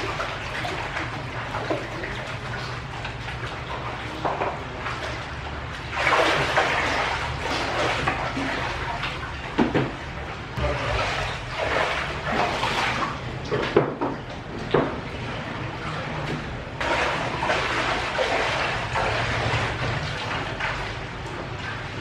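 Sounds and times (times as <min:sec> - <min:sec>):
feet wading through water: 0:00.0 - 0:22.0
plastic basins knocking: 0:09.5 - 0:15.1
hands splashing in basin: 0:10.6 - 0:13.7.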